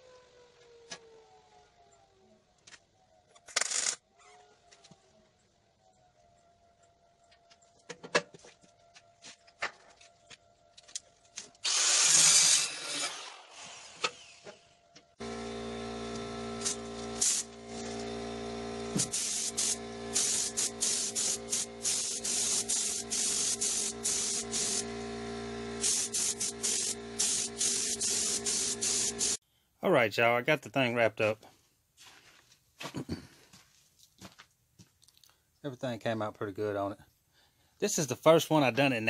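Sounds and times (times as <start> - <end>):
air compressor humming: 15.2 - 29.4
paint spray gun hissing: 15.2 - 29.4.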